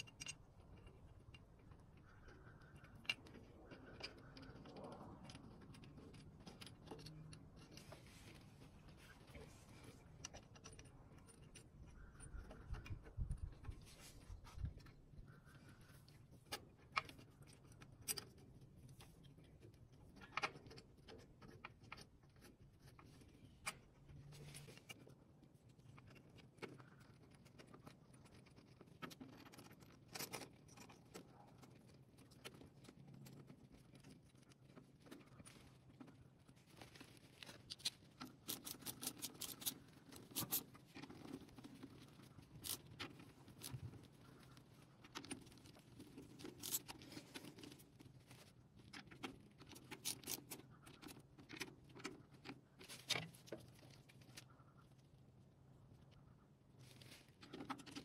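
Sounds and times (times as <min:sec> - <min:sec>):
small metallic clicks and taps: 0:00.0 - 0:13.8.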